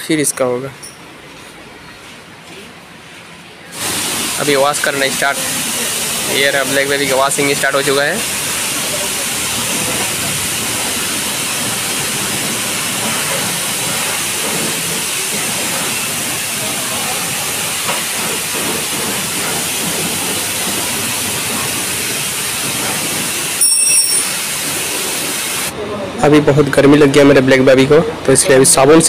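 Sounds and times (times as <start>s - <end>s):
pressure washer spray hissing: 3.7s - 25.7s
brief high-pitched ring: 23.6s - 24.4s.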